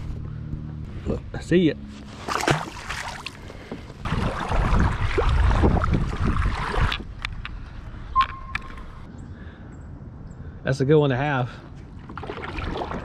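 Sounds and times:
water splashing against kayak: 2.0 - 7.2, 12.0 - 13.0
short steady beep: 8.2 - 9.1.

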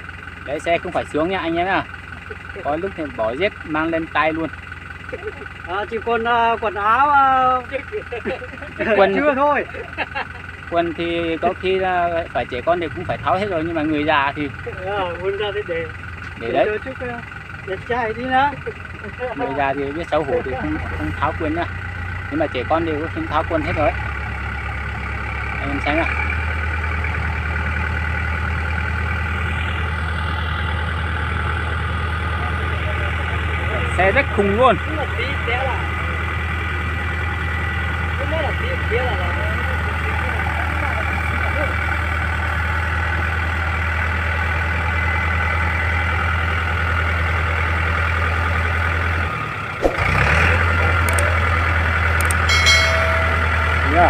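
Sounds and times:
tractor diesel engine under load: 0.0 - 54.0
sharp click: 51.1 - 51.3, 52.2 - 52.5.

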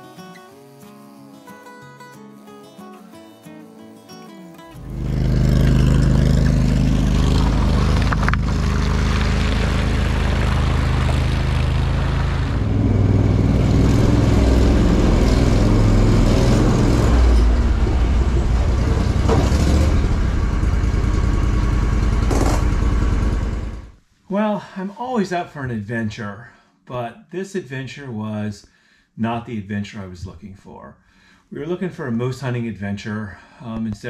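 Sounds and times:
vehicle engine running: 4.8 - 24.0.

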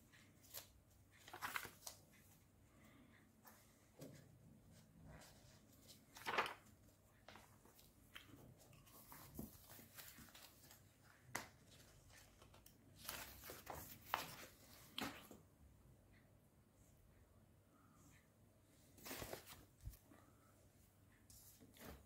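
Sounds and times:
paper pages turning: 0.4 - 2.0, 5.2 - 15.3, 19.0 - 20.0.

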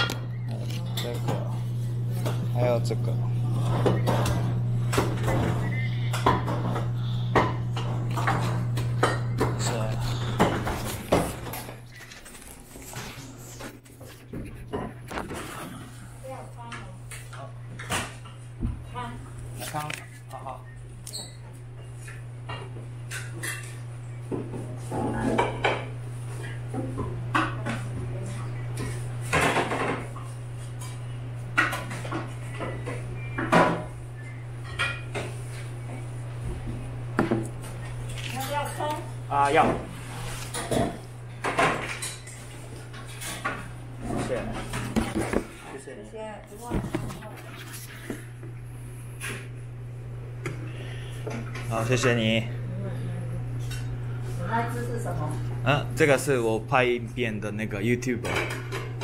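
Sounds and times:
plates and utensils clattering: 0.0 - 2.6, 3.5 - 16.0, 21.9 - 34.0, 34.6 - 35.7, 39.5 - 45.8, 58.2 - 59.0
steady low hum: 0.0 - 59.0.

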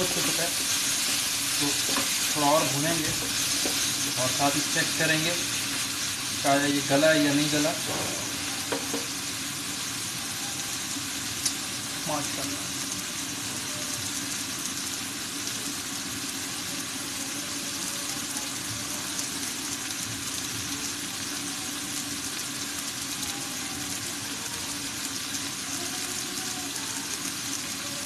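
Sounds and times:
spatula stirring in a pan: 0.0 - 9.1
meat sizzling in a frying pan: 0.0 - 28.0.

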